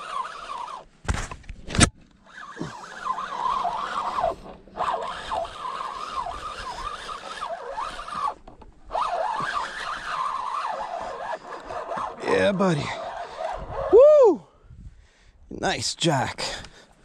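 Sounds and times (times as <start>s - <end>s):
fishing reel whining: 0.0s - 0.9s, 2.2s - 14.4s.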